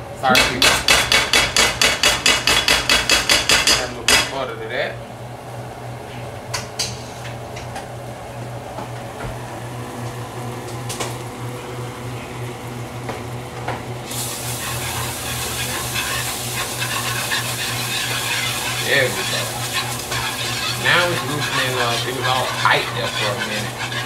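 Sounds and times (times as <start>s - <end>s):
steady low hum: 0.0s - 24.0s
butter sizzling in a frying pan: 9.6s - 24.0s
whisk scraping in a pan: 14.1s - 24.0s.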